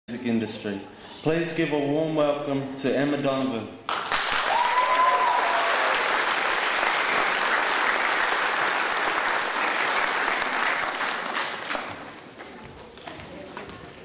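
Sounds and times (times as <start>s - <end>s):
audience applauding: 3.9s - 12.3s
high whoop: 4.4s - 6.1s.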